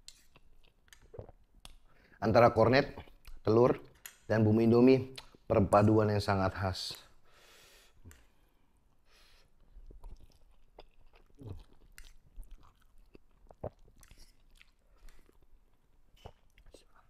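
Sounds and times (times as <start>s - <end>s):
chewing noodles: 9.8s - 17.0s.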